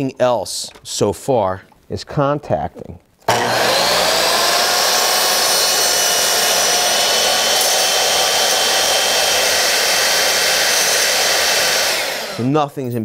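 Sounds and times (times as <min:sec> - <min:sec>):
miter saw cutting board: 0:03.2 - 0:12.6.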